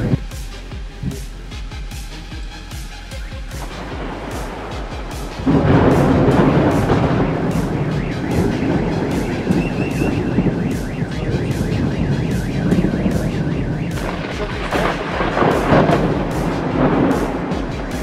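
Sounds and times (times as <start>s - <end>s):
thunder rumbling: 3.6s - 18.0s.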